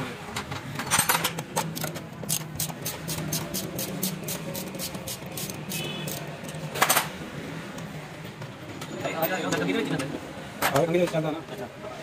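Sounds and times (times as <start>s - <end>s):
ratchet wrench clicking: 1.6s - 6.6s.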